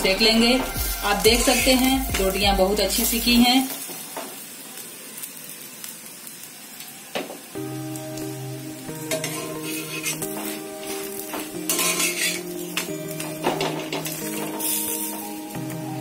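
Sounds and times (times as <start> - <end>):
background music with held notes: 0.0 - 3.4, 7.6 - 16.0
flatbread sizzling on griddle: 0.0 - 16.0
spatula clicking and scraping: 11.7 - 12.9.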